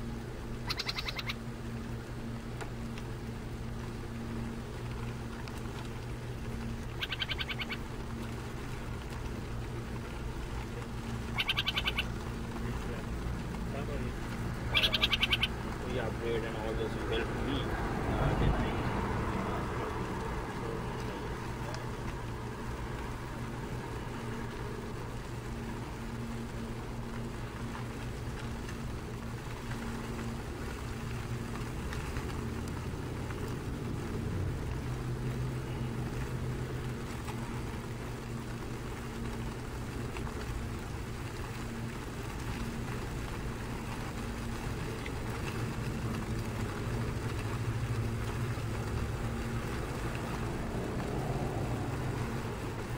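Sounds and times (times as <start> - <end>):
low engine hum: 0.0 - 52.9.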